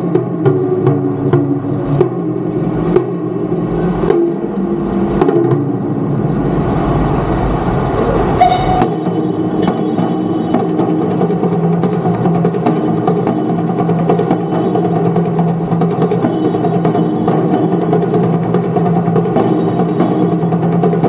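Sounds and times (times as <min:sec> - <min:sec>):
taiko drums playing: 0:00.0 - 0:21.0
low held tone: 0:07.9 - 0:11.4.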